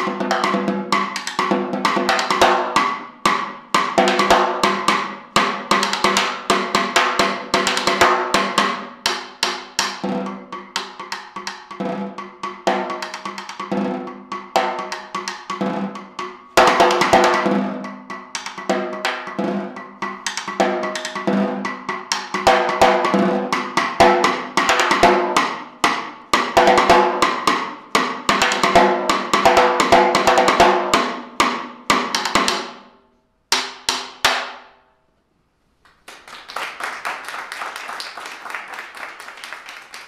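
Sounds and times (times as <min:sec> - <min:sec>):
applause: 0:35.8 - 0:40.0.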